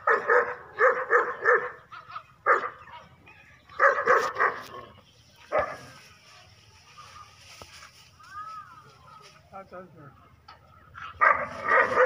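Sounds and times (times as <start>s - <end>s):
dog barking: 0.0s - 1.8s, 2.4s - 2.8s, 3.8s - 4.7s, 5.5s - 6.0s, 11.0s - 12.0s.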